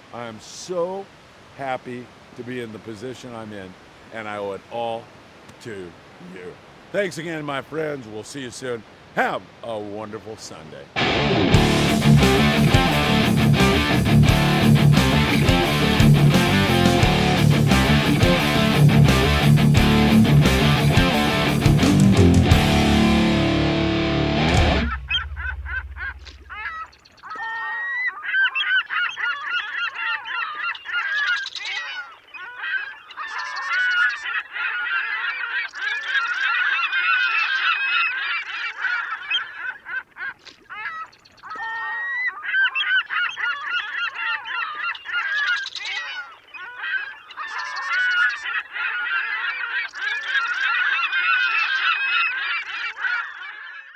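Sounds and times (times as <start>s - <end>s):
flock of birds chattering: 24.8s - 53.9s.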